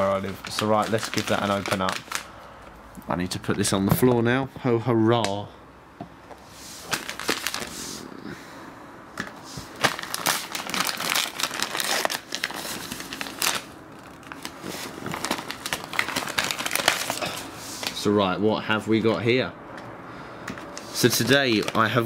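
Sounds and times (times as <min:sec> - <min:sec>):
paper envelope tearing: 0:00.0 - 0:02.3, 0:06.8 - 0:07.8, 0:09.8 - 0:18.0, 0:20.8 - 0:22.0.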